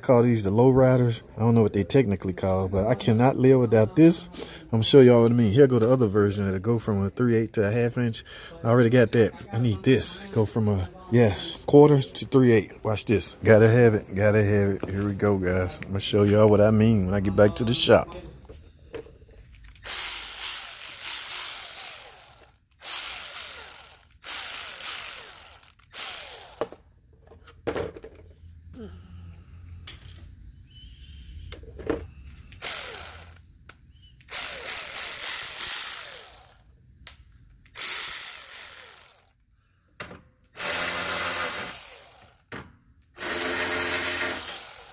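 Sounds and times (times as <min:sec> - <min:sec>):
electric ratchet bursts: 0:19.8 - 0:26.8, 0:32.5 - 0:33.4, 0:34.2 - 0:36.7, 0:37.7 - 0:39.4, 0:40.5 - 0:42.5, 0:43.2 - 0:44.9.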